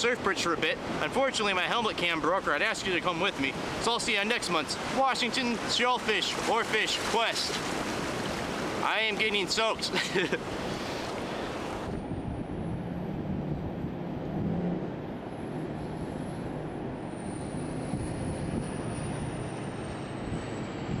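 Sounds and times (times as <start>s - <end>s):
distant ocean surf: 0.0s - 21.0s
wind rumble: 10.4s - 21.0s.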